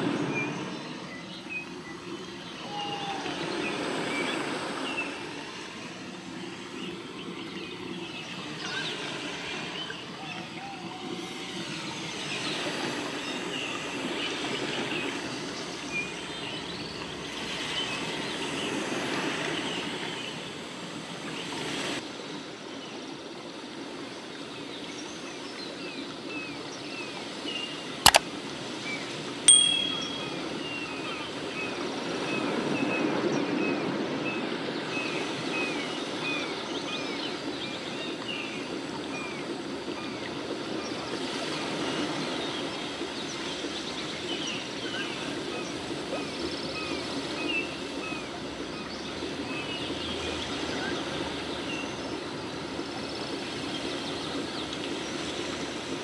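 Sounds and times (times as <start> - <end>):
short high beep: 29.5 - 30.6
short high chirps: 29.5 - 30.7.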